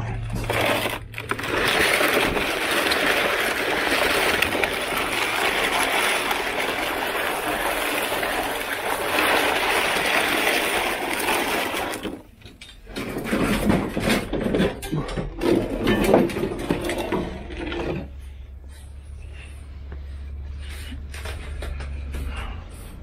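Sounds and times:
crate scraping across concrete: 0:00.0 - 0:14.5.

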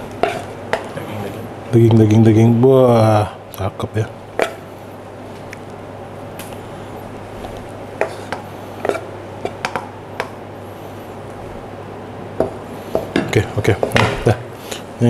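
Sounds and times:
steady low hum: 0:00.0 - 0:15.0
spatula scraping on plate: 0:00.2 - 0:00.9, 0:08.0 - 0:09.8.

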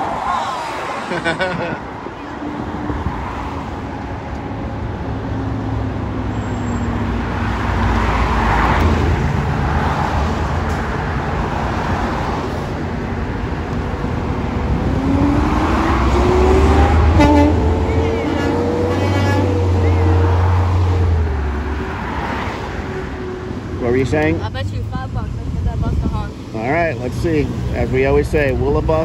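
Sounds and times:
road traffic passing: 0:00.0 - 0:29.0
vehicle accelerating away: 0:14.0 - 0:22.4.

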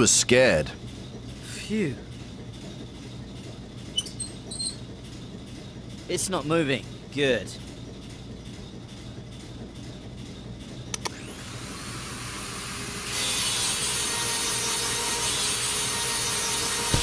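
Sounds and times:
grinder whine spinning up: 0:11.0 - 0:13.3
grinder grinding metal: 0:13.1 - 0:17.0.

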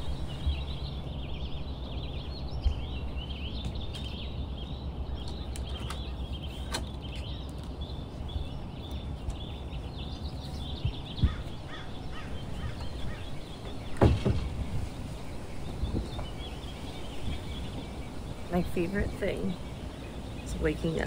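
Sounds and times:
birds chirping: 0:00.0 - 0:21.0
low background rumble: 0:00.0 - 0:21.0
wooden door thud: 0:13.9 - 0:14.8.

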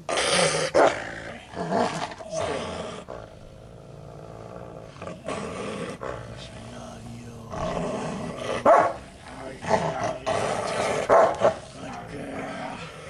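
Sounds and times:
dog barking: 0:08.6 - 0:09.0, 0:11.0 - 0:11.7.

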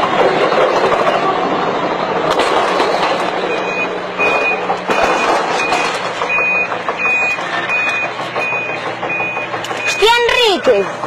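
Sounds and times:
loud mechanical noise: 0:00.0 - 0:11.0
reversing alarm beeping: 0:03.5 - 0:10.7.

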